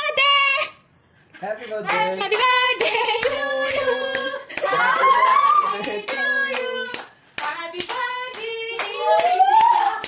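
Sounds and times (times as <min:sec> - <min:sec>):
voices singing: 0:01.7 - 0:10.0
people clapping in time: 0:02.3 - 0:10.0.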